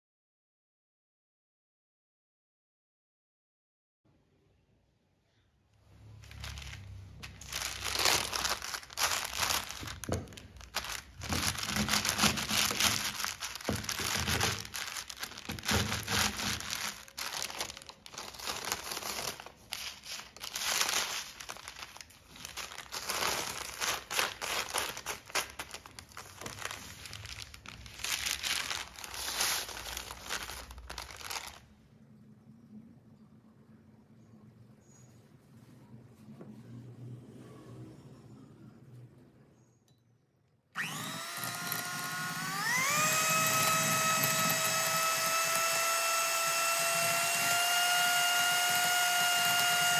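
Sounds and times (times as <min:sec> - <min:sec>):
paper crinkling: 0:06.1 - 0:31.7
cookies crunching: 0:06.4 - 0:31.6.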